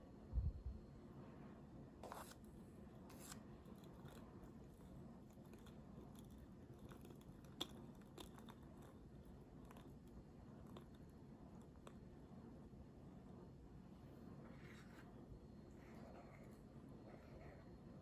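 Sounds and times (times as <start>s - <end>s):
spoon clicking and scraping glass: 3.6s - 12.0s.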